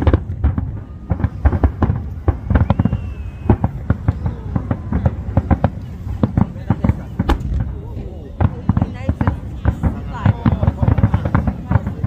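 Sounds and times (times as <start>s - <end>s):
fireworks bursting and cracking: 0.0s - 12.0s
low fireworks booms: 0.0s - 12.0s
faint thin whistle: 2.3s - 3.8s.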